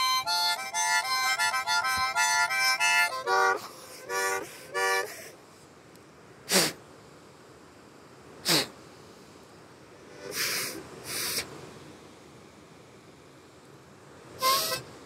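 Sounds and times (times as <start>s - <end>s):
harmonica chords: 0.0s - 5.2s, 14.4s - 14.9s
breathy harmonica puffs: 0.0s - 5.4s, 10.1s - 11.5s, 14.4s - 14.8s.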